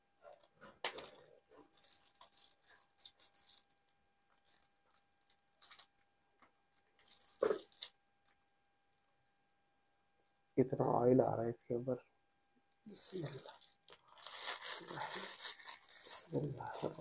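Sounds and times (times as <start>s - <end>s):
plastic bag crinkling: 0.8s - 6.1s, 6.7s - 8.4s, 12.9s - 17.0s.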